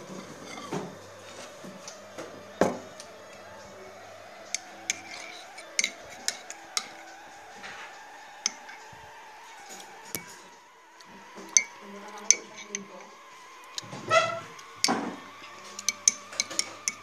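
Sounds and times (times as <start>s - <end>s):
steady hum: 0.0s - 17.0s
ceramic mug clinking: 13.8s - 17.0s.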